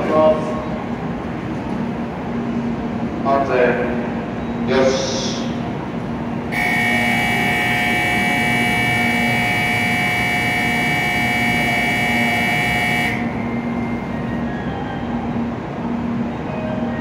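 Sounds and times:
platform departure bell ringing: 6.5s - 17.0s.

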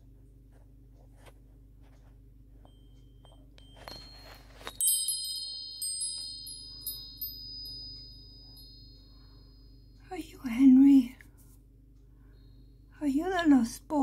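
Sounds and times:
metal chimes ringing: 2.7s - 10.6s
rustling noise: 3.6s - 8.7s.

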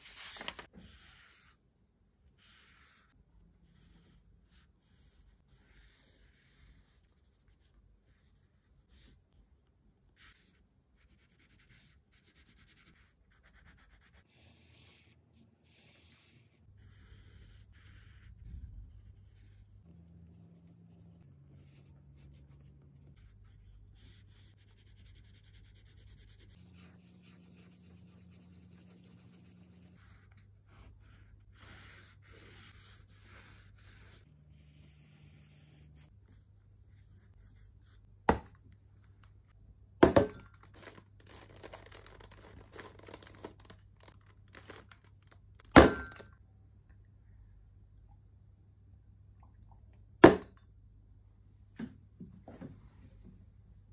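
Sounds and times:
pencil scratching on paper: 0.7s - 1.6s, 2.2s - 9.3s, 10.1s - 38.4s, 40.6s - 43.7s.

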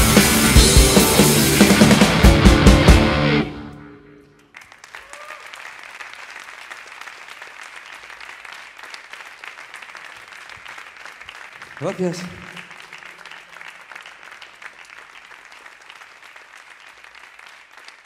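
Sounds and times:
rock band final hits: 0.0s - 4.2s
audience applauding: 4.3s - 18.0s.

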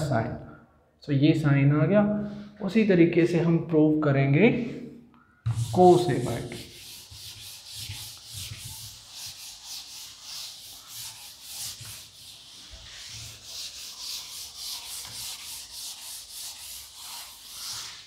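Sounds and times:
duster rubbing on chalkboard: 5.5s - 18.0s.

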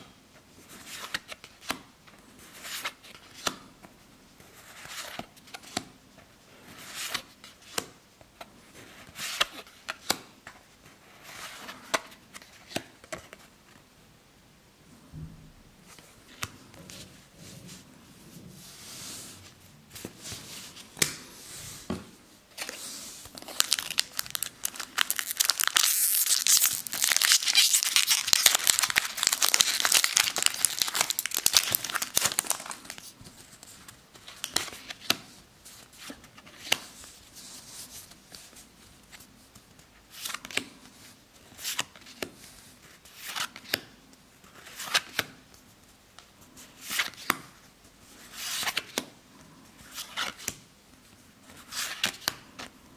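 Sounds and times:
foil wrapper tearing and crinkling: 23.4s - 33.0s.

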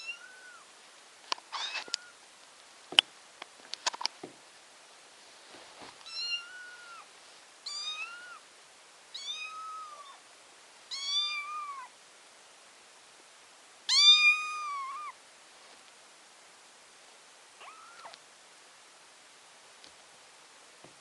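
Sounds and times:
kitten meowing: 0.0s - 0.6s, 1.5s - 2.2s, 6.1s - 7.1s, 7.7s - 8.4s, 9.2s - 10.2s, 10.9s - 11.9s, 13.9s - 15.2s, 17.6s - 18.2s.

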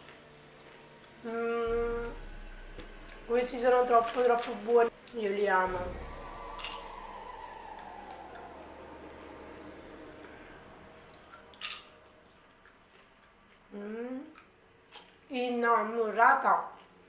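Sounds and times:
person chewing popcorn: 11.5s - 15.3s, 16.6s - 17.0s.

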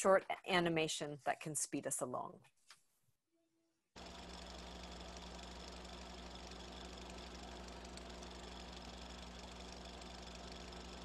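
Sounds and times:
steady mechanical hum: 4.0s - 11.0s.

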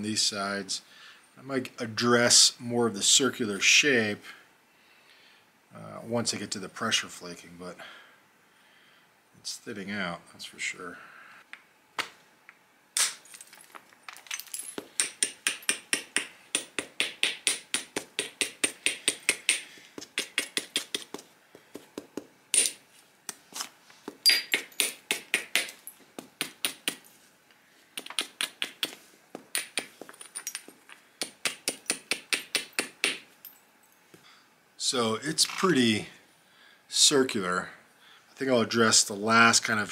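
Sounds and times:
tool tapping on stone: 14.6s - 22.8s, 24.1s - 27.1s, 28.0s - 33.3s.

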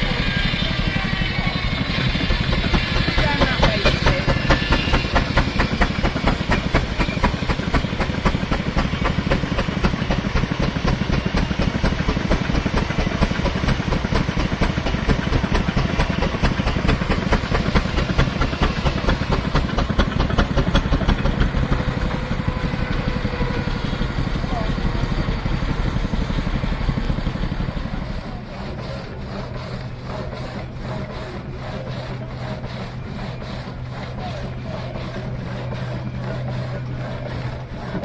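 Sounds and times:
hiss of steam: 0.0s - 21.1s
steam engine exhaust beat: 0.0s - 38.0s.

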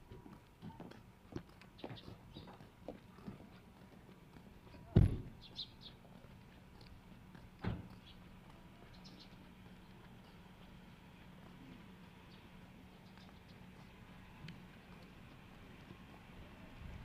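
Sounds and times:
dull thumps: 4.9s - 5.3s.

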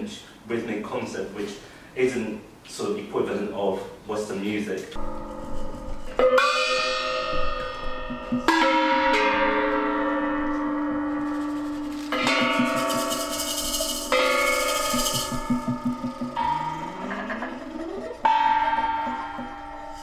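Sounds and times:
gongs struck with mallet: 5.0s - 20.0s.

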